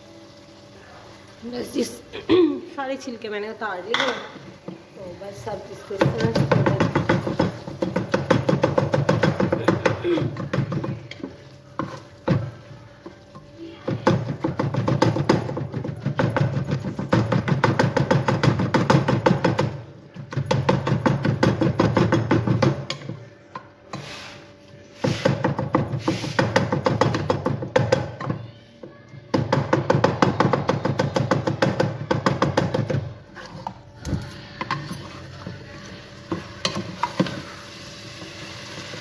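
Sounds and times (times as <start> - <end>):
tomatoes frying in oil: 0.0 - 19.4, 35.0 - 39.0
wooden spatula scraping saucepan: 23.9 - 26.6.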